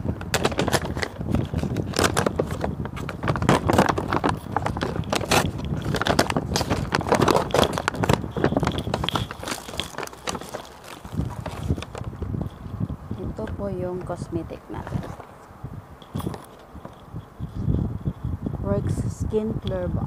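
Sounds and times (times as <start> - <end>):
paper bag rustling: 0.0 - 15.5.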